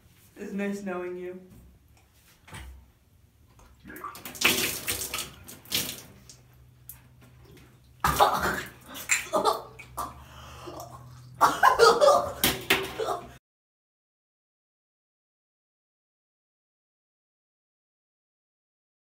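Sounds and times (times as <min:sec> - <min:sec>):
person crying out loudly: 0:08.6 - 0:13.4.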